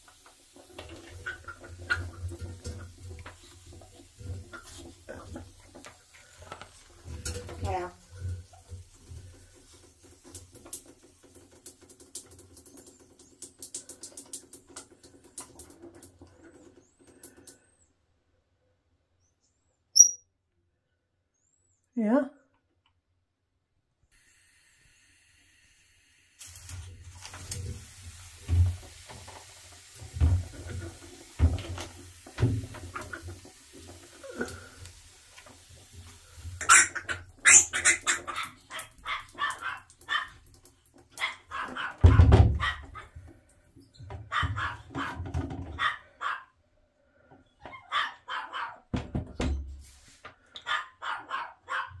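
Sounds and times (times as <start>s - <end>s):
pump mister spraying water: 0.0s - 17.5s, 24.2s - 43.4s
dog barking: 38.2s - 40.4s, 41.2s - 43.1s, 44.3s - 46.5s, 47.7s - 48.9s, 50.6s - 52.0s.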